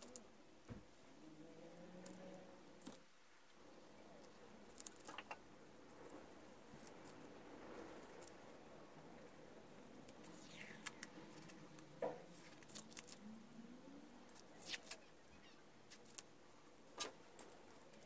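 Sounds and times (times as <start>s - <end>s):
masking tape peeling and crinkling: 10.1s - 13.3s, 14.3s - 15.1s.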